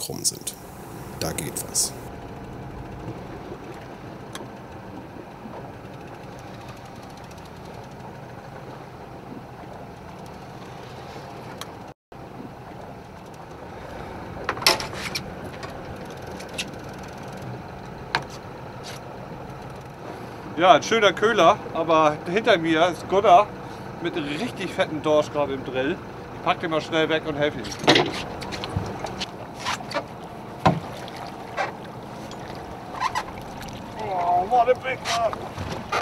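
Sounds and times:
boat engine humming: 0.0s - 36.0s.

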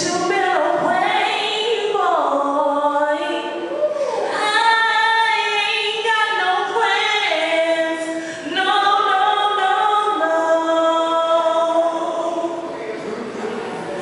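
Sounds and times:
woman singing a cappella: 0.0s - 12.6s
singer breathing: 3.8s - 4.4s, 8.0s - 8.5s.

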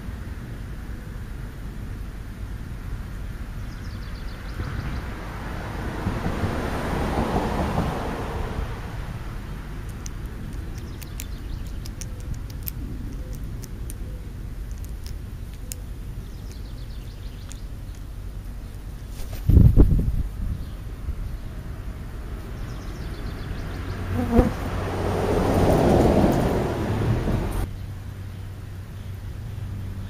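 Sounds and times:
low outdoor rumble: 0.0s - 30.0s
passing vehicle: 4.1s - 12.0s, 21.4s - 27.7s
crows' beaks tapping: 9.8s - 14.0s.

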